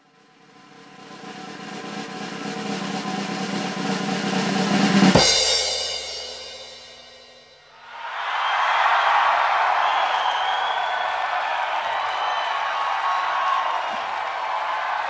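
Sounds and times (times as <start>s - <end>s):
drum roll build-up: 0.0s - 7.4s.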